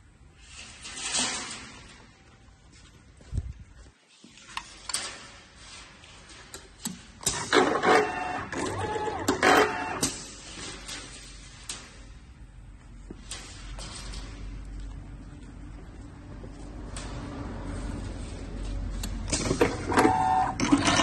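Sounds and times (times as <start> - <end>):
handling noises: 0.5 - 21.0
machine motor whine: 7.6 - 10.0.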